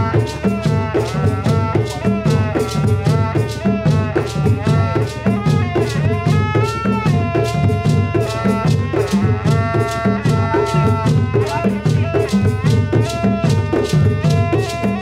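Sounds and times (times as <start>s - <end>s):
hand drums playing fast rhythm: 0.0s - 15.0s
high sliding melody: 0.0s - 15.0s.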